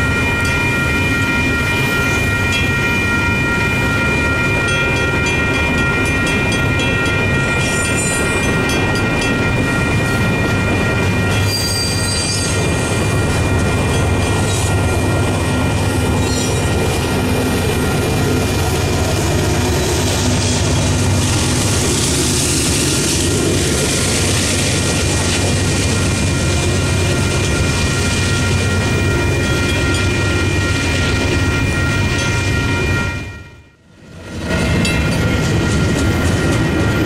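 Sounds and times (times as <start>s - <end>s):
diesel locomotive engine: 0.0s - 37.0s
train wheels rumbling on rails: 0.0s - 37.0s.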